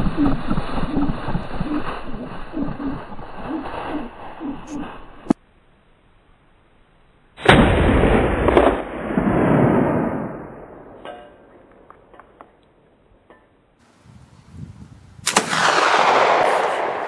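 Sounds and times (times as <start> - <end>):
shotgun firing with echo: 15.2 - 17.0.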